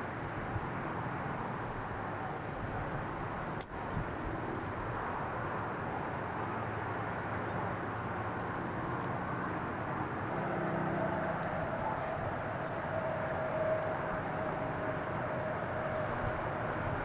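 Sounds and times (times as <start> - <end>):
distant traffic rumble: 0.0 - 17.0
steady whine: 0.0 - 17.0.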